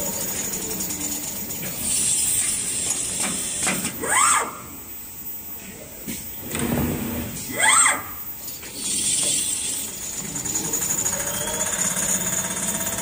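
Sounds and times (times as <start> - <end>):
sewing machine whine: 8.8 - 13.0
sewing machine stitching: 10.0 - 13.0.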